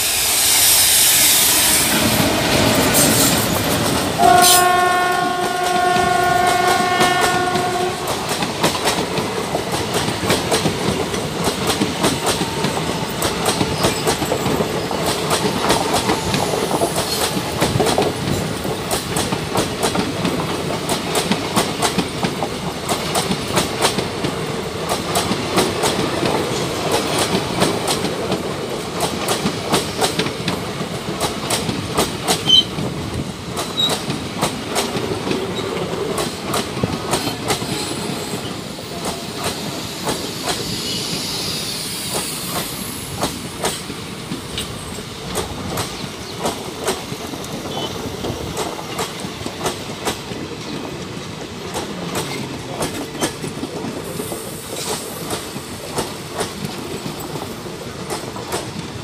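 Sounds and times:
train passing: 0.0 - 59.0
train wheels clickety-clack: 0.0 - 59.0
locomotive horn blast: 4.2 - 8.4.

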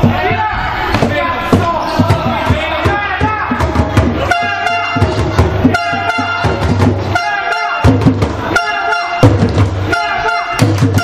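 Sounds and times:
loud music with horn chords: 2.3 - 11.0.

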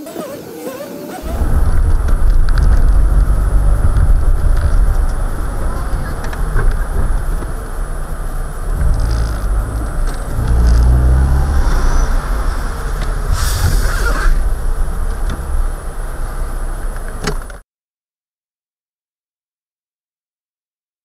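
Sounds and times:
bus rumbling alongside: 1.2 - 17.6
car road and engine noise: 1.2 - 17.6.

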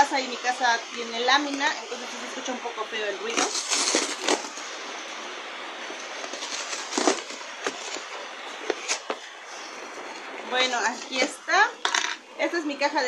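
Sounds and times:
steady background hiss: 0.0 - 13.0
cardboard box being torn open: 3.3 - 4.6, 6.3 - 8.1.

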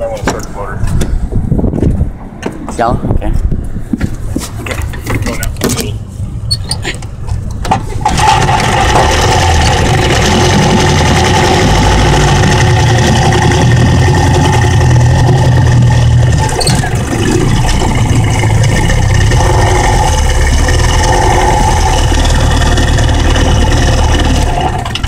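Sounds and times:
outboard motor running: 7.9 - 25.0.

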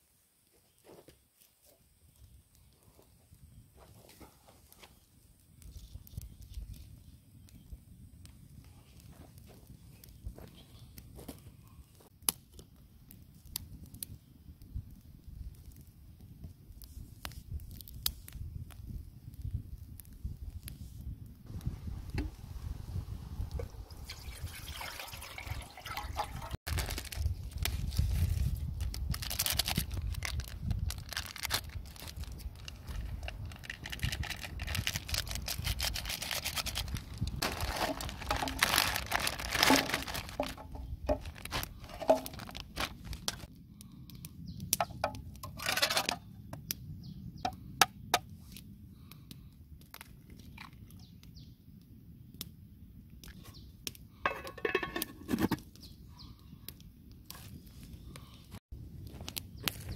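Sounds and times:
seasoning packets rustling: 26.7 - 43.5
metal lid clanking on tin: 54.3 - 55.6.

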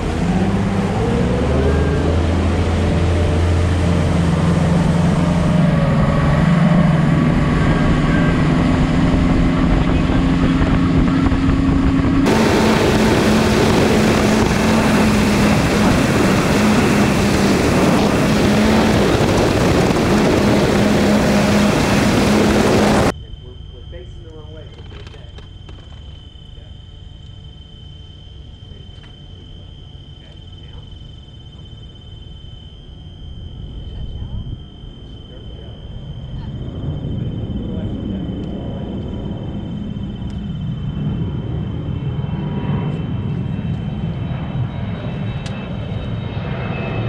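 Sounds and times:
outboard motor running at speed: 0.0 - 23.1
rush of wind and water: 0.0 - 23.1.

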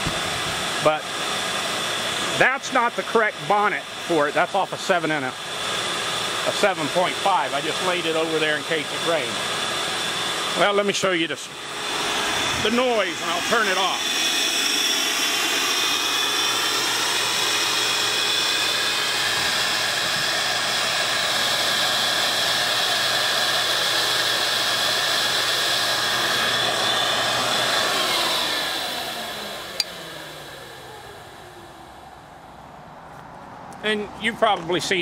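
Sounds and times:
shop vac motor whining: 0.0 - 32.9.

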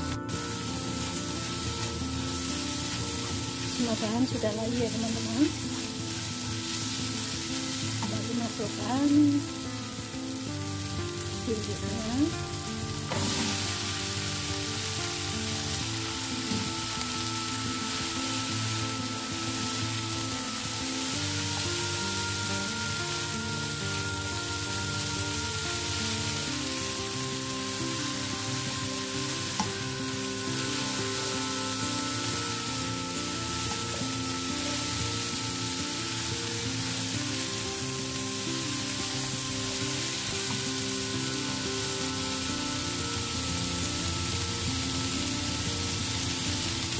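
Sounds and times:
food sizzling in a wok: 0.0 - 46.9
soft background music: 0.0 - 46.9.

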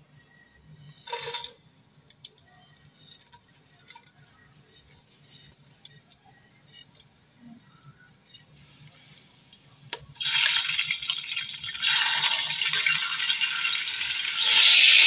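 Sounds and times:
oil crackling and popping: 8.9 - 15.0
spices sizzling in hot oil: 10.2 - 15.0.

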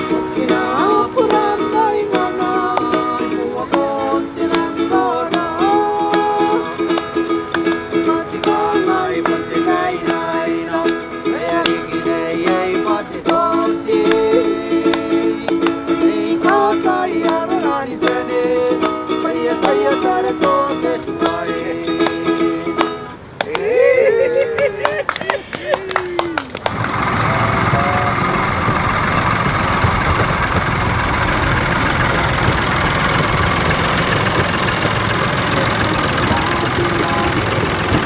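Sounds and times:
ukulele strumming: 0.0 - 23.6, 26.5 - 38.0
person singing: 0.0 - 24.8, 35.5 - 38.0.

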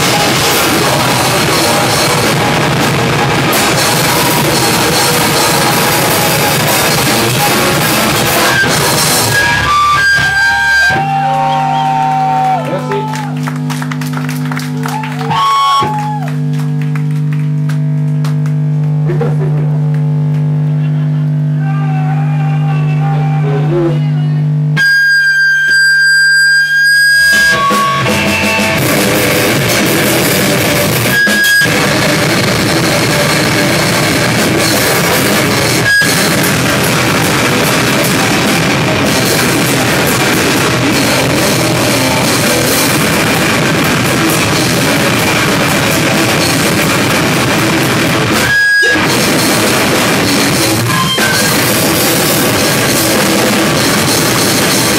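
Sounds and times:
rock band playing live: 0.0 - 12.6, 24.8 - 54.9
high steady tone: 20.6 - 54.9.

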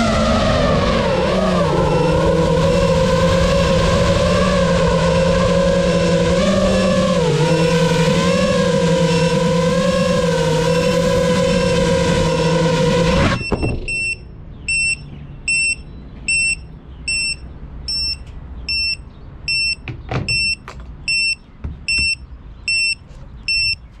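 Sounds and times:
steady droning: 0.0 - 19.8
short high beeps: 13.4 - 23.8.

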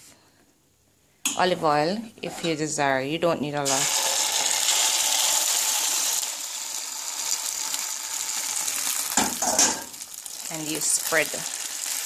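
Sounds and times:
omelet mixture sizzling in hot oil: 3.6 - 12.0.

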